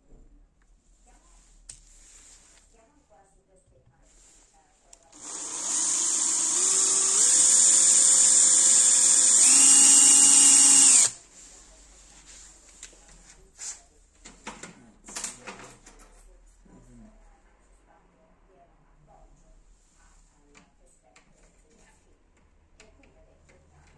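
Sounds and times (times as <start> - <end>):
electric drill boring into metal: 5.2 - 11.2.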